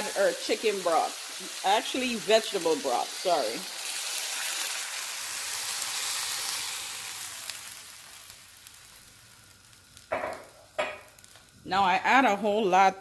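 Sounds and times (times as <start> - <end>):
vegetables sizzling in a wok: 0.0 - 13.0.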